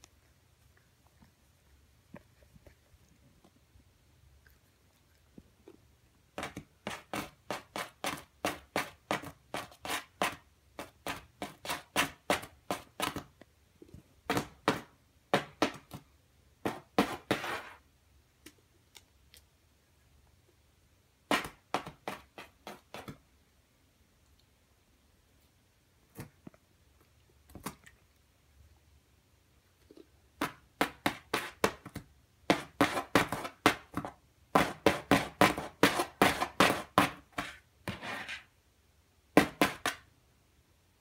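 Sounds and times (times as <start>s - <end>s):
cat claws scratching cardboard box: 6.4s - 13.3s, 30.4s - 38.5s.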